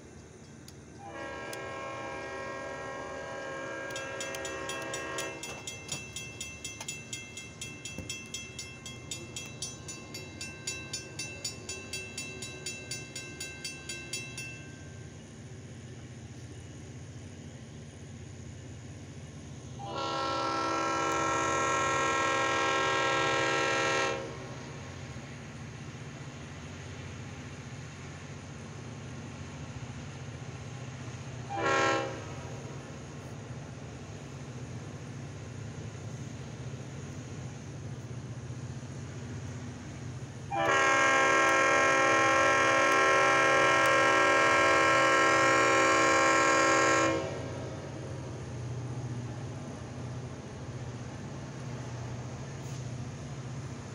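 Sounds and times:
locomotive air horn: 0:01.0 - 0:05.7, 0:19.8 - 0:24.8, 0:31.4 - 0:32.7, 0:40.5 - 0:48.0.

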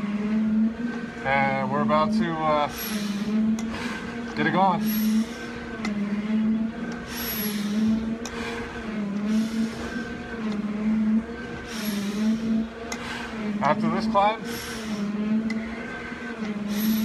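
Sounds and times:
steady mechanical hum: 0:00.0 - 0:17.0
breaths hissing through regulator: 0:02.6 - 0:05.8, 0:07.0 - 0:10.5, 0:11.4 - 0:13.5, 0:14.4 - 0:17.0.

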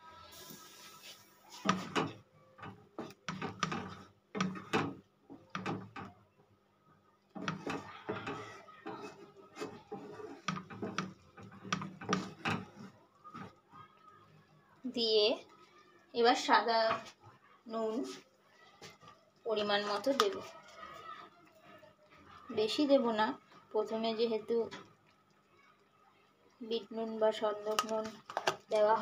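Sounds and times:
spatula scraping frying pan: 0:00.7 - 0:06.1, 0:07.4 - 0:13.8.

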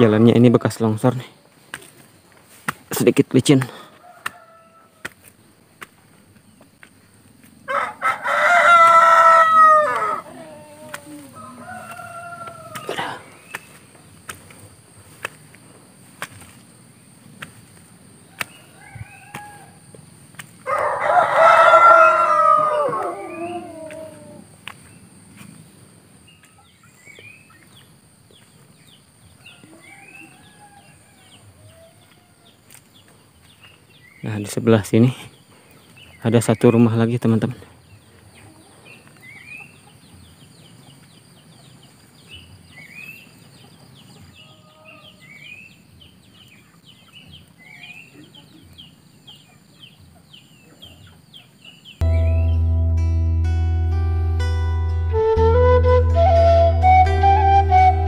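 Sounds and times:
rooster crowing: 0:03.8 - 0:05.2, 0:07.6 - 0:13.2, 0:18.3 - 0:20.0, 0:20.6 - 0:24.5, 0:29.4 - 0:32.6, 0:44.3 - 0:45.4
small birds chirping: 0:10.2 - 0:21.0, 0:22.0 - 0:52.7
bird whistled calls: 0:55.1 - 0:58.0.

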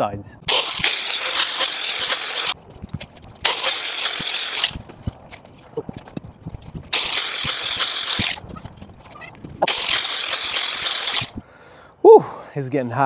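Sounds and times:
power tool cutting wire mesh: 0:00.5 - 0:02.6, 0:03.4 - 0:04.9, 0:06.8 - 0:11.4.

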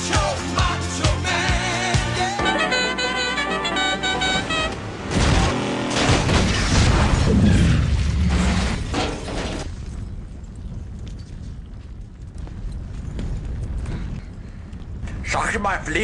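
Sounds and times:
music with held notes: 0:01.3 - 0:04.8.

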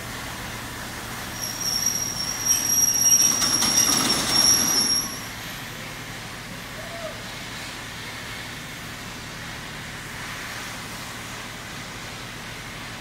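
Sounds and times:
low rumble of rolling stock: 0:00.0 - 0:13.0
train wheels squealing on rails: 0:00.9 - 0:07.8.

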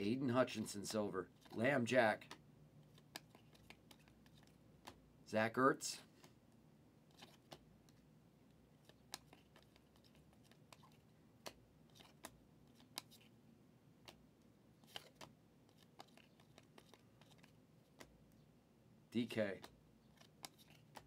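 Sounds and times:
trading cards clicking: 0:14.8 - 0:18.2, 0:19.5 - 0:21.0.

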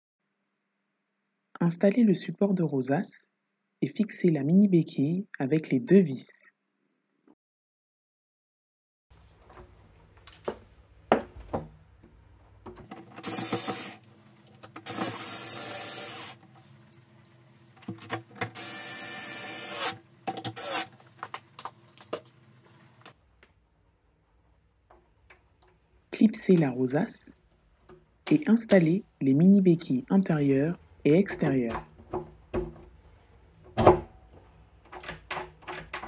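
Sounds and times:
electric screwdriver running: 0:13.2 - 0:14.0, 0:14.7 - 0:16.4, 0:18.4 - 0:20.9.

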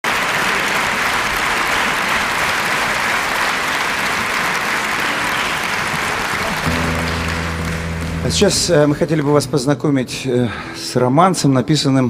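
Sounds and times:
audience applauding: 0:00.0 - 0:09.5.

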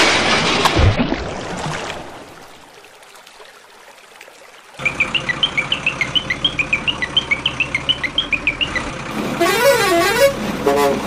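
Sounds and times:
rapid high chirps: 0:04.8 - 0:08.9
truck engine pulsing: 0:04.8 - 0:11.0.

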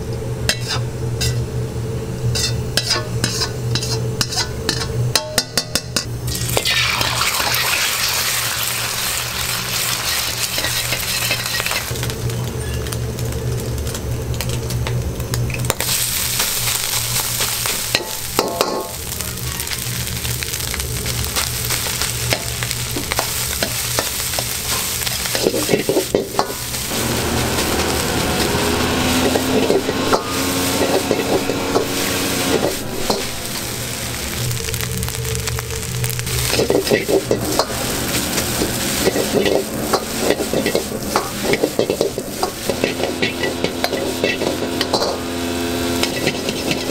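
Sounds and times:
rice sizzling in a wok: 0:00.0 - 0:46.9
metal ladle scraping a wok: 0:00.5 - 0:01.5, 0:02.3 - 0:12.0, 0:22.3 - 0:46.9
steady low rumble: 0:19.0 - 0:46.9.

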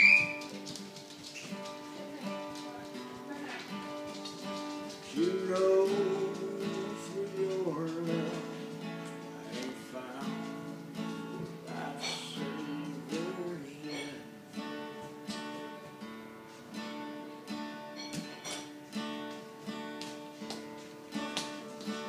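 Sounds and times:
acoustic guitar strumming: 0:00.0 - 0:22.0
man singing: 0:05.0 - 0:14.4.

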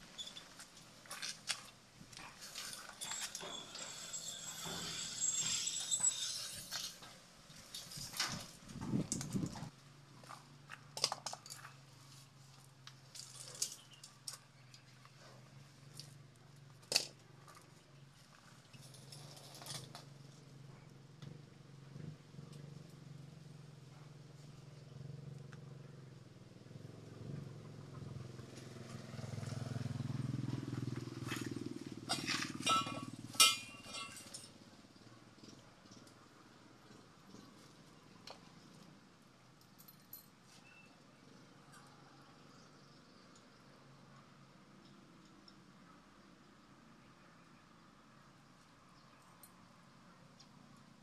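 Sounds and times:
metal clinks and taps: 0:32.1 - 0:34.5.

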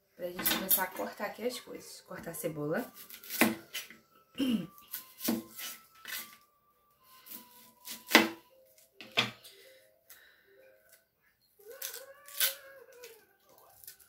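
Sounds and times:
knife cutting onion on board: 0:02.9 - 0:04.0, 0:04.9 - 0:06.4, 0:07.3 - 0:08.4.

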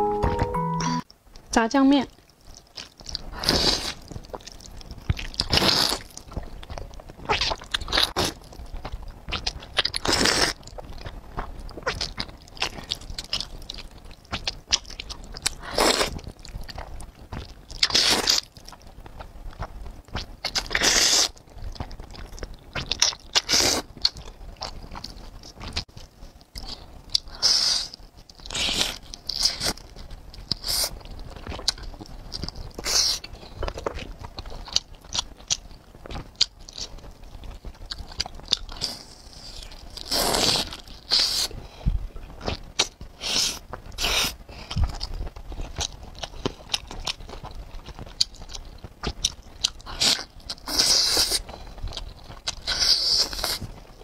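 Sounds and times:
wet chewing: 0:02.2 - 0:18.9, 0:42.4 - 0:54.0.

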